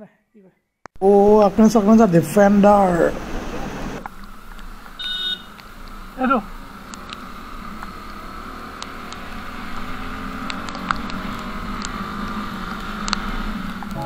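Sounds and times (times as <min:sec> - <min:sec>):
road and wind noise: 0:00.9 - 0:14.0
motorcycle engine running: 0:04.0 - 0:14.0
sharp ticks: 0:06.8 - 0:14.0.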